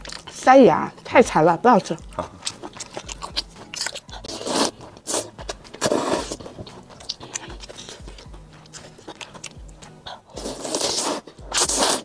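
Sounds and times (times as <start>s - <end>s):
wet chewing: 0.0s - 12.0s
slurping noodles and broth: 2.2s - 12.0s
small mouth clicks: 6.6s - 12.0s.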